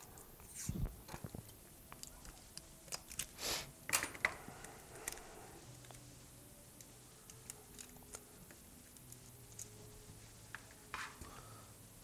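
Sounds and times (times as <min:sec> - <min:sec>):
tape crinkling: 0:00.0 - 0:04.0.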